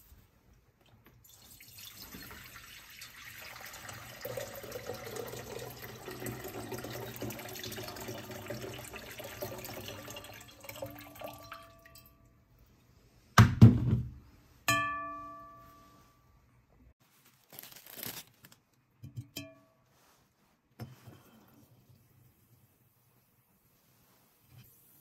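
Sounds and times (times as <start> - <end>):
water dripping: 0.8 - 12.3
water pouring into glass bowl: 1.3 - 12.2
glass bowl clinking and ringing: 10.7 - 12.4, 14.7 - 16.2, 19.1 - 19.8.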